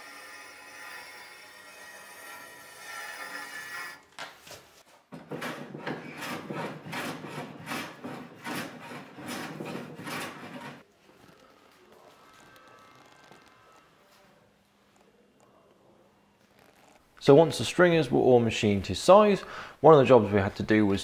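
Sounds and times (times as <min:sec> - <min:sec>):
hand plane shaving wood: 0:05.2 - 0:10.8.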